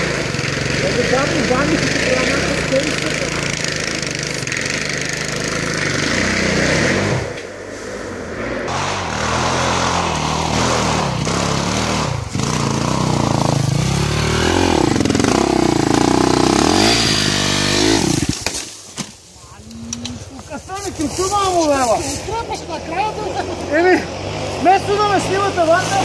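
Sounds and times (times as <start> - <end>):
dirt bike engine revving: 0.0 - 18.7, 19.6 - 26.0.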